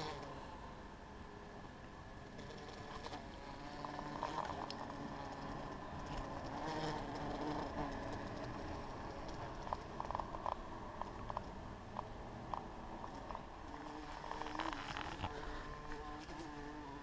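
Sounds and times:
bumblebee buzzing: 0.0 - 0.5, 2.2 - 11.4, 13.0 - 17.0.

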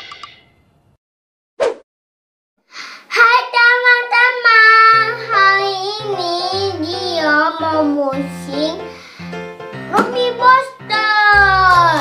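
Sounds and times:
child singing: 3.1 - 8.8, 9.9 - 12.0
low instrumental accompaniment: 5.8 - 12.0.

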